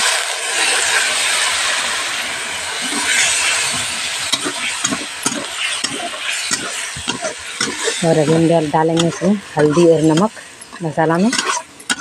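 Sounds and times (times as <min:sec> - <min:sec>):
spice paste sizzling in oil: 0:00.0 - 0:12.0
spatula scraping pan: 0:02.8 - 0:12.0.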